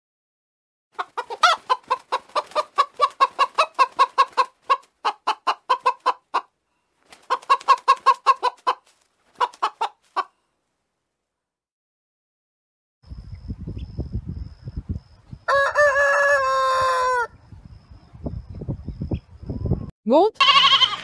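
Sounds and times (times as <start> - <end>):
chickens clucking: 1.0 - 10.4.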